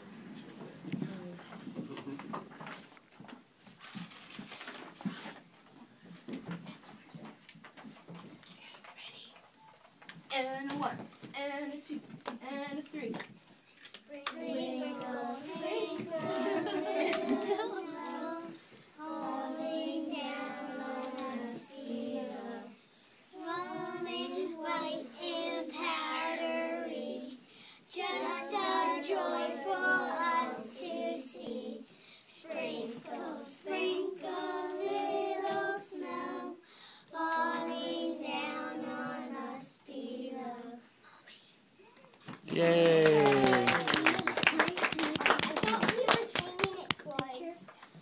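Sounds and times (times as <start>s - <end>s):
young children singing: 14.1s - 40.8s.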